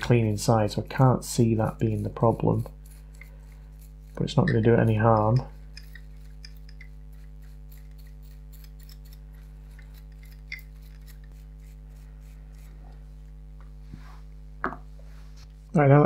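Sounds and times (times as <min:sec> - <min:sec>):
small tool scratching and ticking: 0:01.0 - 0:12.8.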